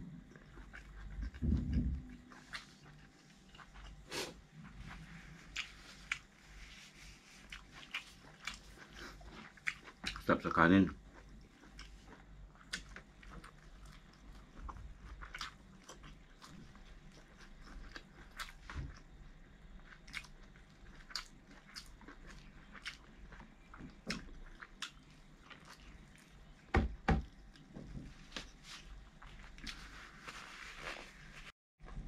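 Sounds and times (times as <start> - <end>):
person chewing and biting: 0.3 - 6.6, 7.4 - 10.2, 11.0 - 19.1, 19.8 - 26.6.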